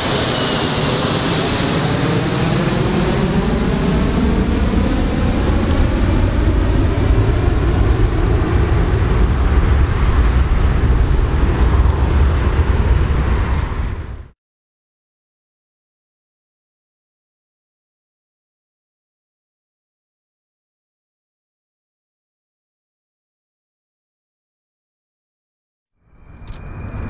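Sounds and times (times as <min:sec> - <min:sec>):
deep rumble: 0:00.0 - 0:14.4, 0:26.2 - 0:27.0
jet engine whine: 0:00.0 - 0:14.4, 0:26.0 - 0:27.0
jet roar: 0:00.0 - 0:14.4, 0:26.1 - 0:27.0.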